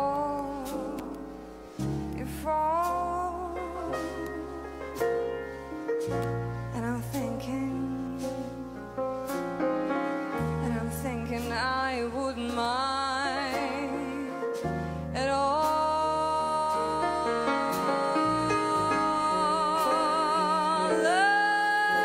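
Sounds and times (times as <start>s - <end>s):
jazz ballad on grand piano: 0.0s - 22.0s
woman singing with vibrato: 2.2s - 5.0s, 6.7s - 8.7s, 10.6s - 14.6s, 15.2s - 22.0s.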